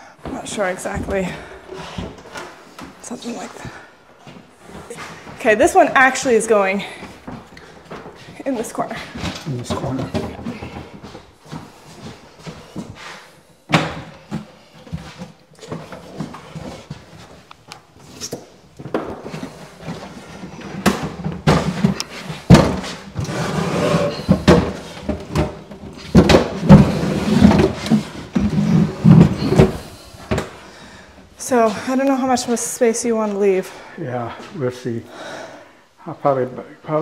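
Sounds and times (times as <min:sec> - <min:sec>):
wooden cabinet knocking and thudding: 0:09.2 - 0:11.2, 0:13.7 - 0:14.4, 0:20.5 - 0:30.6.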